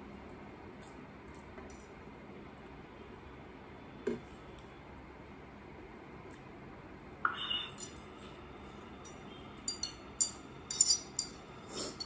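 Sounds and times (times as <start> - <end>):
chopsticks clinking on ceramic plate: 9.1 - 12.0.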